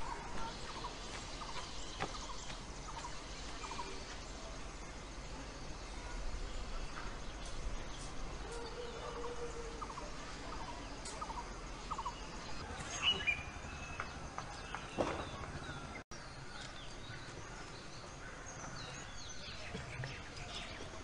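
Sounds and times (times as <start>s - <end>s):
steady forest hiss: 0.0s - 21.0s
birds chirping and whistling: 11.2s - 16.0s.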